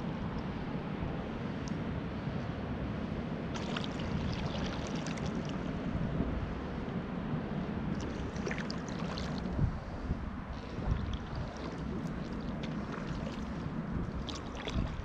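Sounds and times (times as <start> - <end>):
wind on microphone: 0.0 - 15.0
paddle water splashing and dripping: 3.6 - 5.6, 8.0 - 15.0
small crackling splashes: 3.6 - 5.6, 8.0 - 9.6, 10.7 - 15.0.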